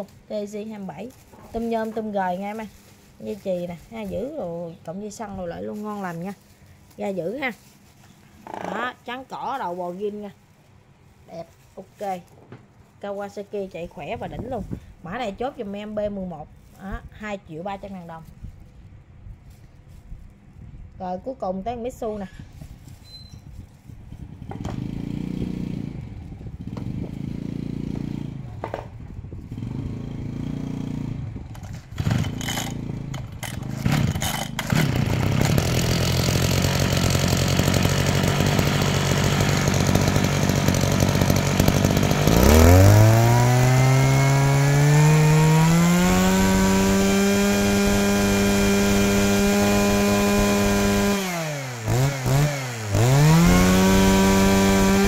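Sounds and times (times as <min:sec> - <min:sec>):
small two-stroke engine revving: 0:24.1 - 0:55.0.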